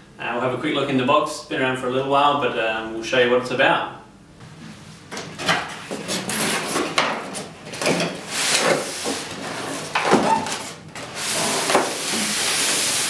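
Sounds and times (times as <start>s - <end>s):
foam tray scraping cardboard: 5.9s - 7.5s, 8.2s - 13.0s.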